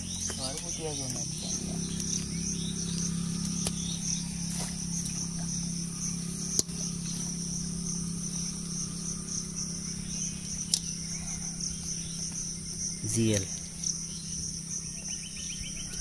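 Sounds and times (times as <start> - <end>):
insects chirring: 0.0 - 16.0
low hum: 0.0 - 16.0
sharp clicks: 10.6 - 11.0.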